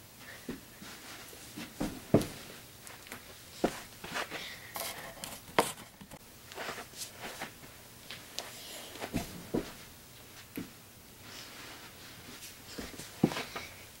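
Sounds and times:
thumps on carpeted floor: 1.8 - 2.4.

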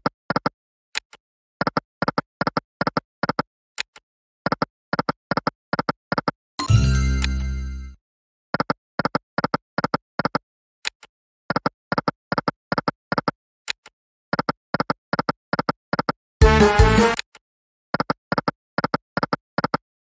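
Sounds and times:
chiming win sound: 6.6 - 8.0.

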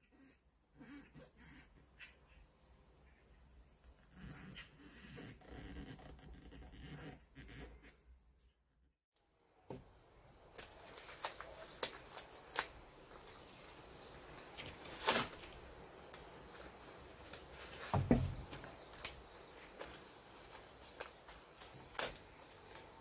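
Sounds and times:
tape and paper rustling: 10.5 - 23.0.

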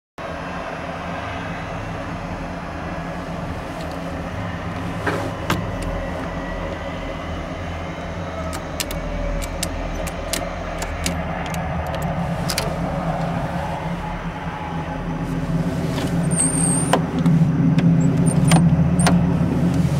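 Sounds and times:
low droning hum: 0.2 - 19.9
sharp clicks of control stick buttons: 8.4 - 12.7.

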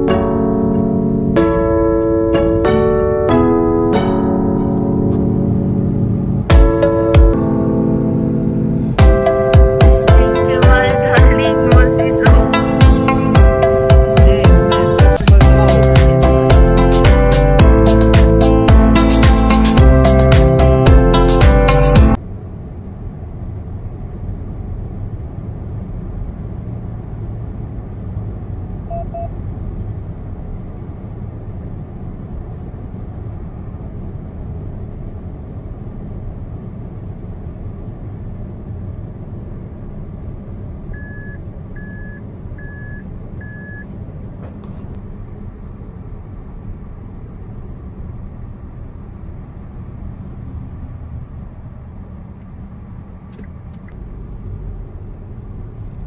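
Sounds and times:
car road and engine noise: 0.0 - 56.0
short high electronic beeps: 28.9 - 29.3, 41.0 - 43.8.

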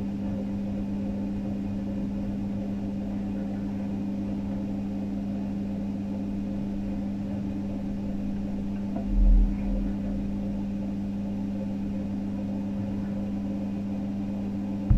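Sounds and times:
steady machine hum: 0.0 - 14.9
dull low thump: 9.0 - 10.0.

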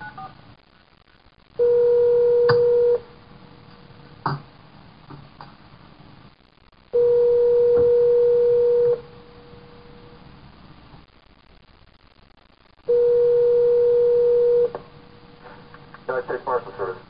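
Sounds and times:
quiet line noise: 0.0 - 17.0
telephone ringback tone: 1.6 - 3.0, 7.0 - 9.0, 12.9 - 14.7.

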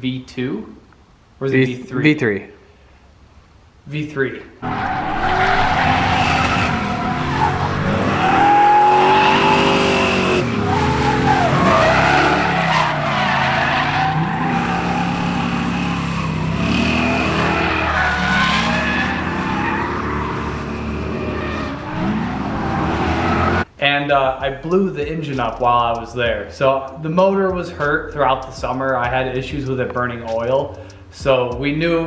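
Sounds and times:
car engines revving: 4.6 - 23.7
tyres squealing: 4.6 - 23.7.

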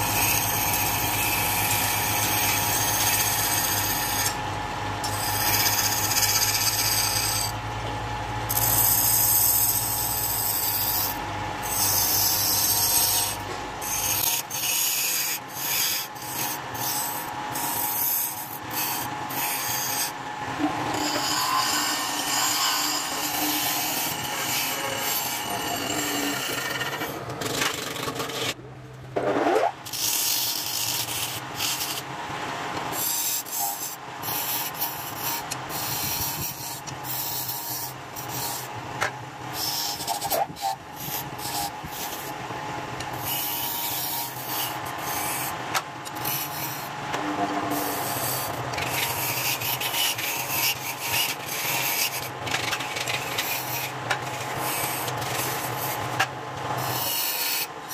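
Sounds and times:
lathe humming: 0.0 - 28.6
turning tool scraping wood: 20.9 - 28.6, 29.2 - 32.1, 43.2 - 57.9.

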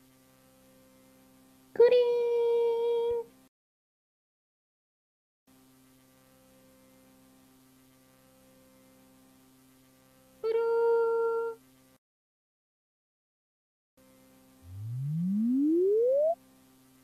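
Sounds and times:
faint steady hum: 0.0 - 3.5, 5.5 - 12.0, 14.0 - 17.0.

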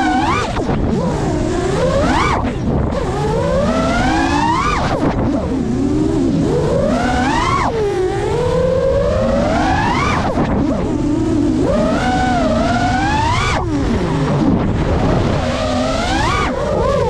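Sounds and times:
low rumble of wind: 0.0 - 17.0
quadcopter motors whining: 0.0 - 17.0.

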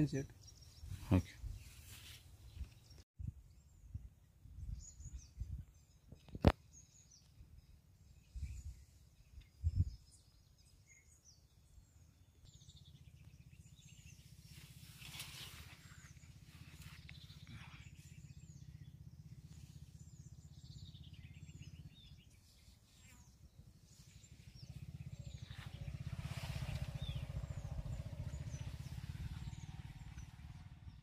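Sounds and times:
bird chirping: 0.0 - 31.0
wind rumbling on microphone: 2.5 - 6.6, 7.4 - 10.3, 23.4 - 31.0.

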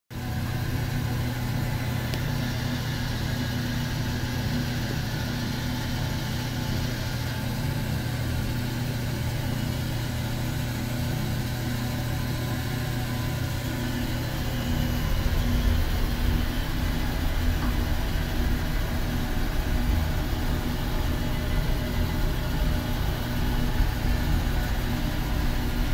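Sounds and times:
sawmill machinery humming: 0.2 - 25.9
deep rumble: 13.9 - 25.9.

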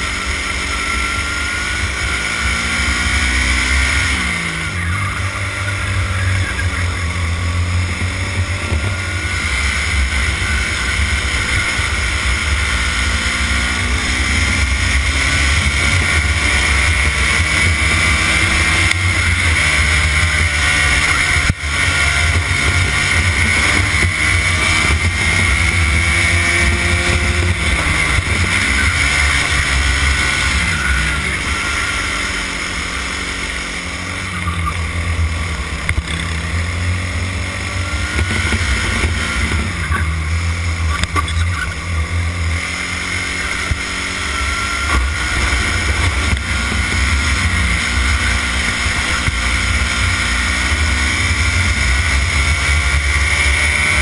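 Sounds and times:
kart engine revving: 0.0 - 54.0.

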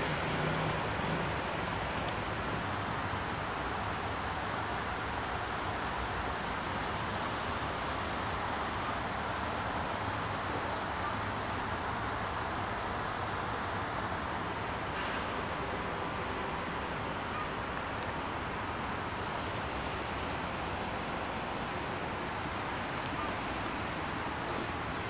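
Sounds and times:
distant traffic: 0.0 - 25.0
faint light ticks: 1.6 - 2.3, 7.8 - 8.1, 11.4 - 15.2, 16.4 - 18.3.

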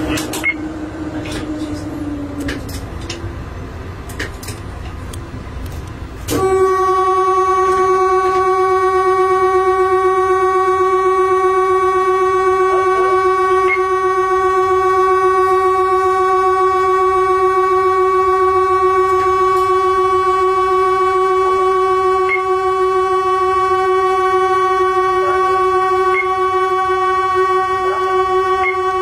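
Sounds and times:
train horn long blast: 6.2 - 29.0.

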